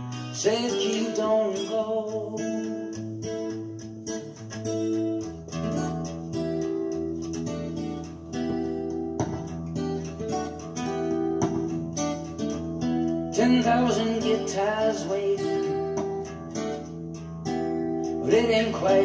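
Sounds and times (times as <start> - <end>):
strummed acoustic guitar: 0.0 - 19.0.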